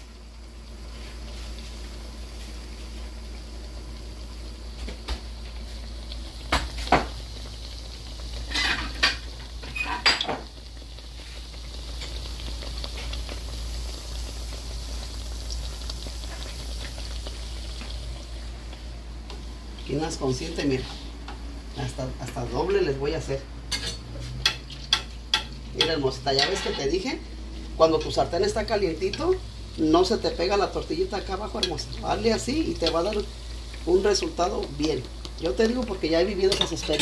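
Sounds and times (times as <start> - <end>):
oil sizzling in a pan: 0.0 - 37.0
utensils and cookware clattering: 8.5 - 10.5, 23.7 - 27.0, 36.4 - 37.0.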